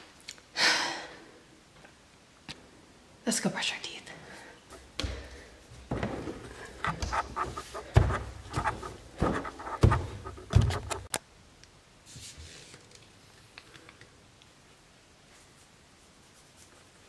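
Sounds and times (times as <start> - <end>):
footsteps on hardwood floor: 4.7 - 11.1.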